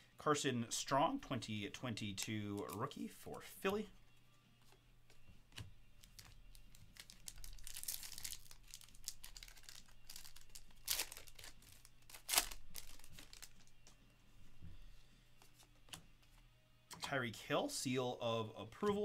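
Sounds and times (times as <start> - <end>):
foil wrapper crinkling and tearing: 6.0 - 13.7.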